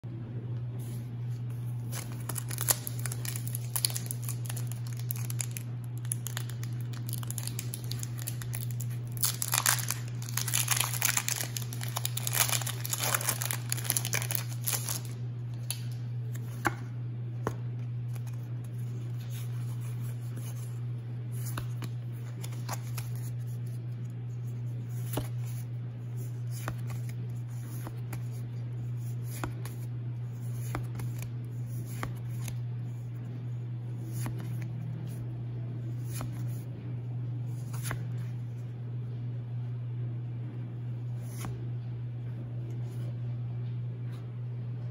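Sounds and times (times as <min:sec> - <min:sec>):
steady low hum: 0:00.0 - 0:44.9
cards being flipped through: 0:00.8 - 0:23.8, 0:24.9 - 0:25.6, 0:26.4 - 0:32.6, 0:34.0 - 0:35.1, 0:35.9 - 0:36.6, 0:37.5 - 0:38.3, 0:41.2 - 0:41.6
foil wrapper crinkling and tearing: 0:01.9 - 0:15.9.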